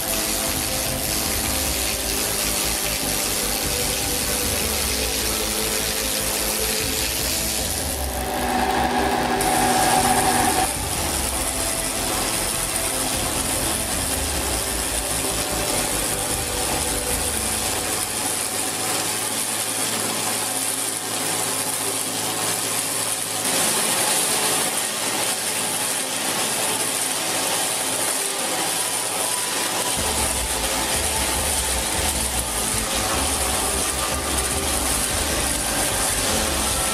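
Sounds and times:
cutter shaving wood hiss: 0.0 - 36.9
log lathe rattling: 0.0 - 36.9
low rumble: 7.2 - 13.6.

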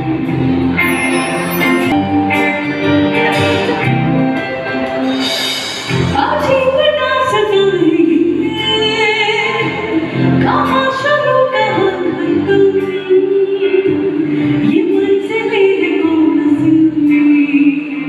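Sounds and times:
instrumental accompaniment: 0.0 - 18.0
woman singing with vibrato: 6.0 - 18.0.

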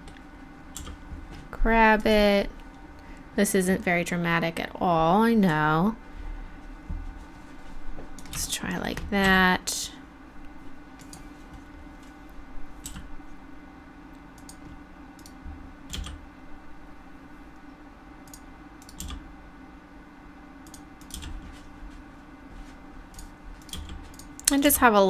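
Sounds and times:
low hum: 0.0 - 25.0
keyboard and mouse clicking: 0.8 - 1.0, 12.8 - 13.1, 14.4 - 16.2, 18.2 - 19.2, 20.6 - 21.4, 23.2 - 24.6.

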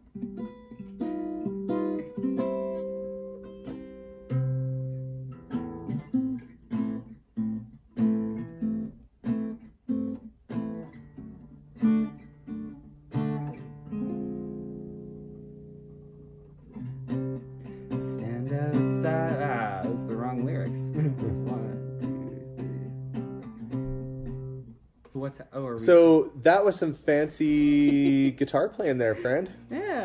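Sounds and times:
acoustic guitar picking: 0.0 - 30.0.

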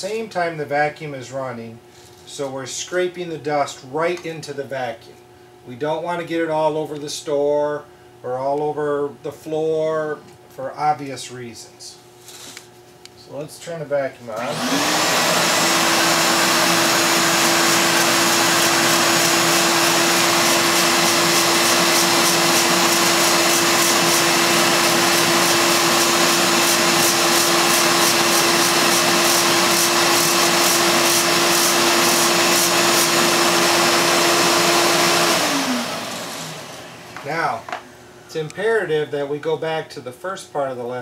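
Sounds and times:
vacuum cleaner whining: 14.3 - 38.5.

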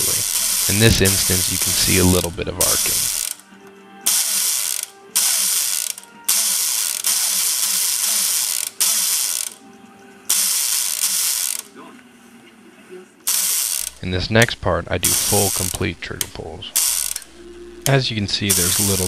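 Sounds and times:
motor and gears cycling: 0.0 - 3.4, 4.1 - 9.6, 10.3 - 11.7, 13.3 - 14.2, 15.0 - 19.0.

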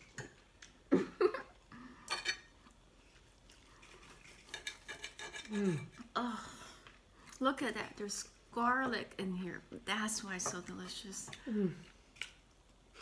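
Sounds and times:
cutlery clinking on plates: 2.1 - 2.5.

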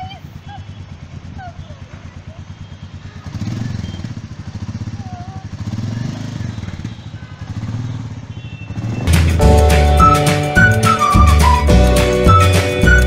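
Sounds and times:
motorcycle engine revving: 0.0 - 13.0
flute-like background music: 9.0 - 13.0.

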